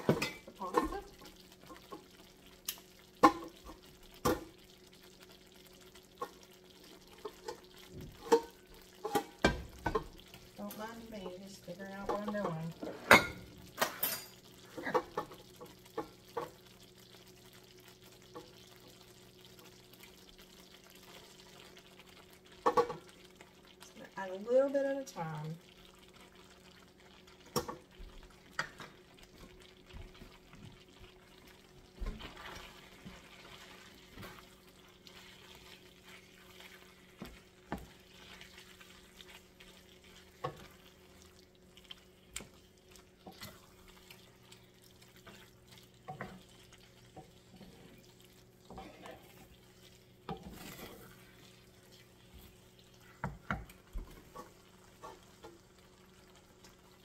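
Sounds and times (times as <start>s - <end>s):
wooden spoon scraping a pan: 47.1s - 49.6s, 50.3s - 55.6s.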